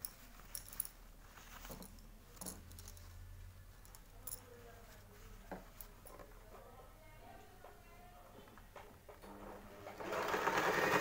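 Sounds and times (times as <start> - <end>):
denim rustling: 0.0 - 6.8.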